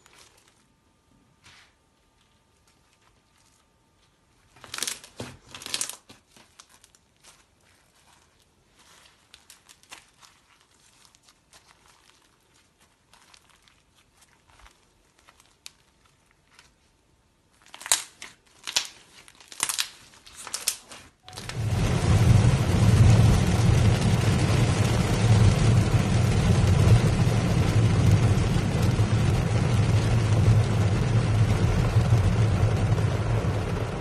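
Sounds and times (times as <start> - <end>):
slime crackling and popping: 4.4 - 16.9, 17.5 - 34.0.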